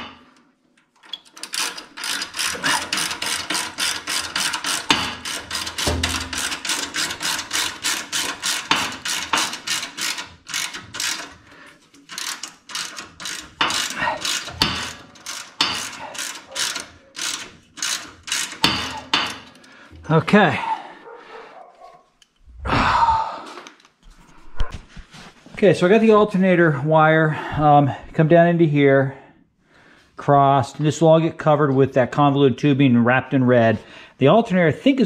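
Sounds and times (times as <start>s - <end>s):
socket ratchet clicking rapidly: 1.1s - 19.7s.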